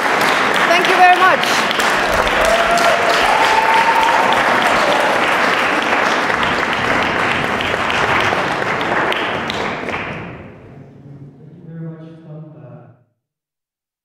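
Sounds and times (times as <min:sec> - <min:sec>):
audience applauding loudly: 0:00.0 - 0:10.6
person whooping: 0:02.1 - 0:05.7.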